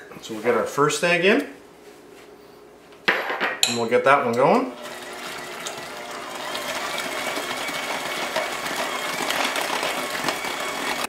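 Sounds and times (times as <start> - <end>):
electric hand mixer running: 4.7 - 11.0.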